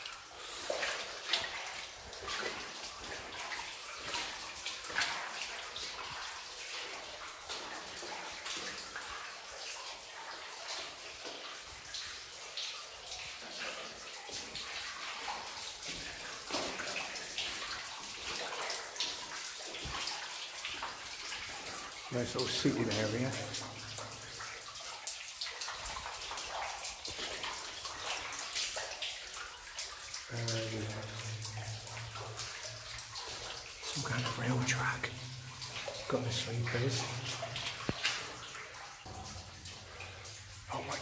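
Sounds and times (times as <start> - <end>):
running water rushing: 0.0 - 41.0
footsteps splashing in water: 0.7 - 9.1, 15.2 - 21.6, 31.1 - 41.0.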